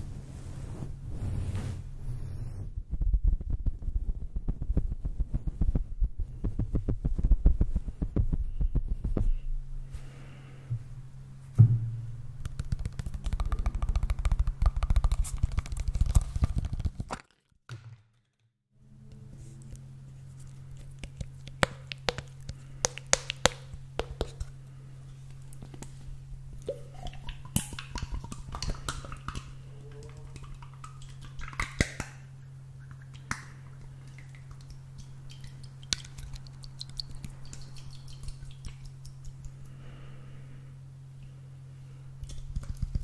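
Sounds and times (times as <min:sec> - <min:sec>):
rustling on microphone grille: 0:00.0 - 0:09.4
low hum: 0:00.0 - 0:17.0, 0:18.8 - 0:43.0.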